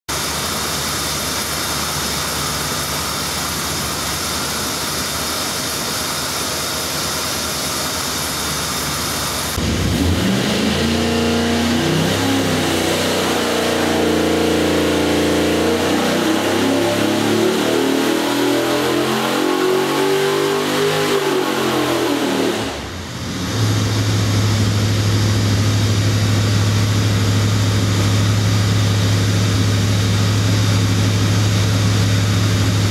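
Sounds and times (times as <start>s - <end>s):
engine running on dyno: 0.1s - 32.9s.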